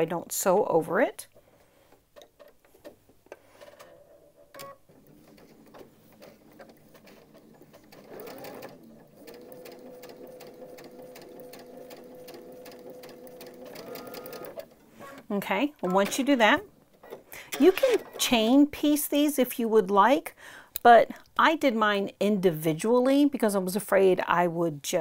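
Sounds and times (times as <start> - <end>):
sewing machine stitching: 3.6 - 18.5.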